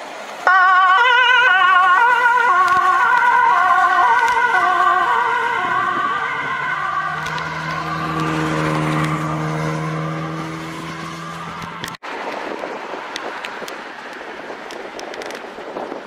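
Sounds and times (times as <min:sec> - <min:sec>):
vehicle engine drone: 0:00.0 - 0:15.8
siren wailing: 0:00.5 - 0:12.0.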